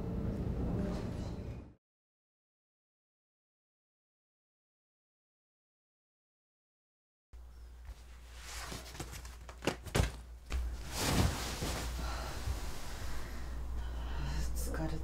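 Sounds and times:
low steady hum: 0:07.4 - 0:15.0
person flopping onto a bed: 0:07.9 - 0:13.0
rustle of bedding: 0:07.9 - 0:13.3.

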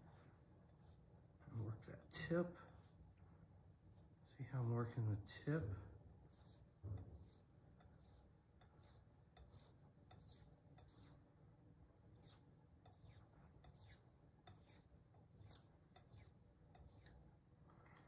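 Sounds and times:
knife scraping on sharpening stone: 0:06.3 - 0:11.2, 0:12.1 - 0:17.2.

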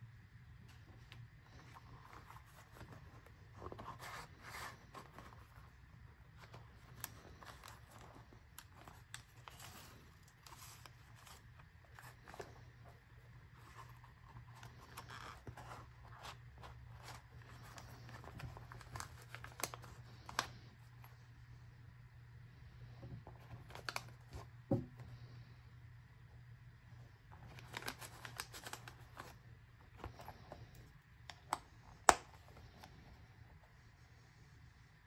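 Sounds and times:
low steady hum: 0:00.0 - 0:35.0
wallet rustling and rubbing: 0:00.6 - 0:21.5, 0:27.2 - 0:34.0.

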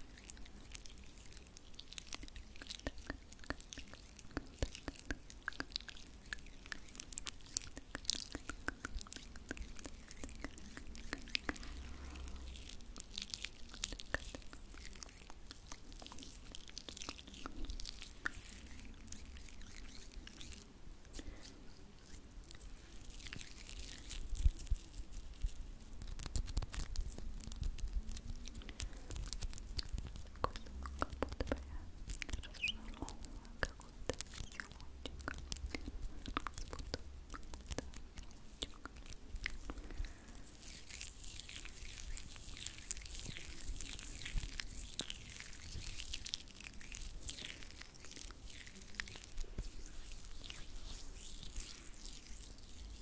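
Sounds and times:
hands rubbing sticky product: 0:00.0 - 0:53.0
soft fizzing hiss: 0:00.0 - 0:53.0.

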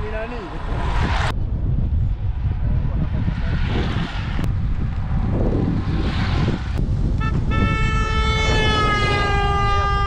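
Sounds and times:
engine and road rumble: 0:00.0 - 0:10.0
wind buffeting microphone: 0:00.0 - 0:10.0
vehicle horn: 0:07.2 - 0:10.0.

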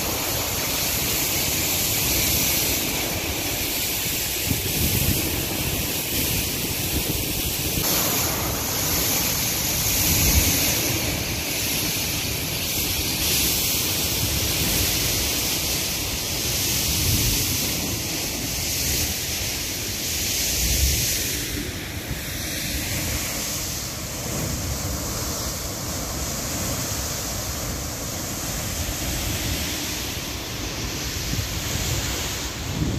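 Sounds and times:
water rushing down a spillway: 0:00.0 - 0:32.9
wind buffeting microphone: 0:04.3 - 0:11.3, 0:30.6 - 0:32.9.

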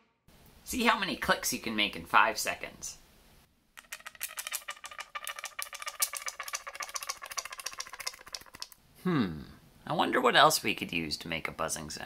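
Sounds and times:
plastic straw clicking: 0:03.8 - 0:08.8.

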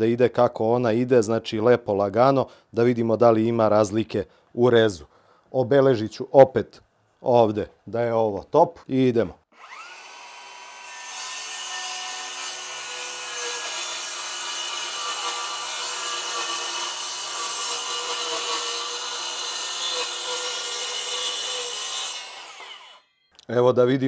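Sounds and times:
circular saw cutting wood: 0:09.5 - 0:23.3.

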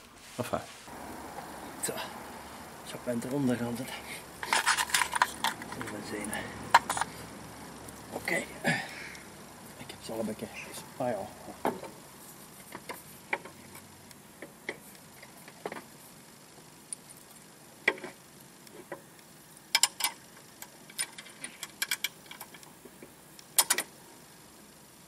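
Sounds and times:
metal clicks and clinks: 0:04.4 - 0:07.1, 0:19.7 - 0:22.6.

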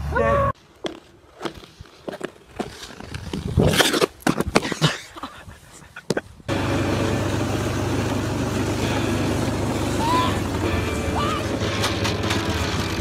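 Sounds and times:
rushing wind: 0:03.0 - 0:04.6
vehicle engine running: 0:06.5 - 0:13.0
short rising cries: 0:08.8 - 0:11.6.

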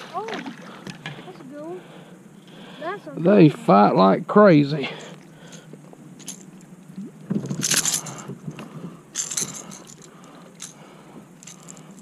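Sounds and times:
lure and hooks rattling: 0:05.4 - 0:06.6, 0:07.4 - 0:08.4, 0:09.1 - 0:12.0.

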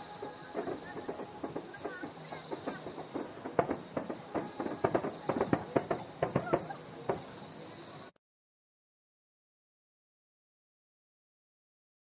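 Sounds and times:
crackling fireworks: 0:00.0 - 0:08.1.

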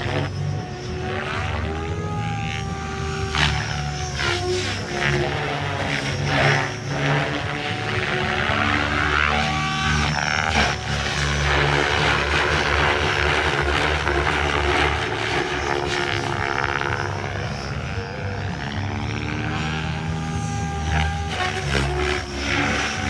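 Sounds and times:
helicopter rotor blades chopping: 0:00.0 - 0:23.0
motor whine: 0:00.0 - 0:23.0.

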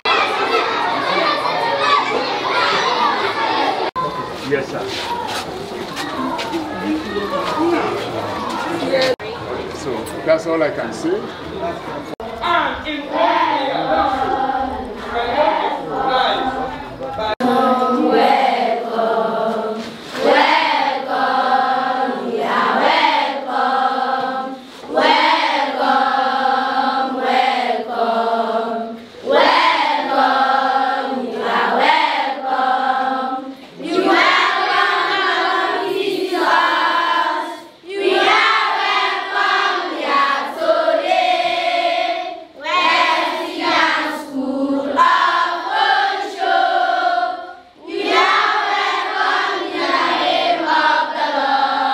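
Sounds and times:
children singing in unison: 0:13.1 - 0:51.9.

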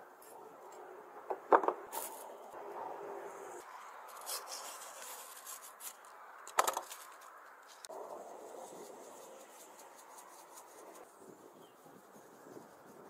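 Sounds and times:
paper packets rustling: 0:04.1 - 0:07.9.

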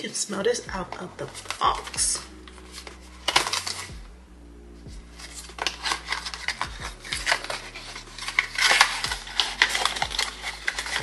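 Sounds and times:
cardboard box being opened: 0:01.3 - 0:04.0, 0:05.1 - 0:11.0.

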